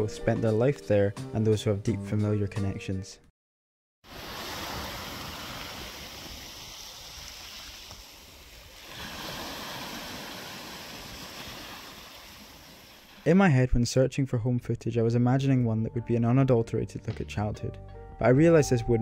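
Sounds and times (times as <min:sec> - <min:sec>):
waves on stony shore: 0:04.1 - 0:13.2.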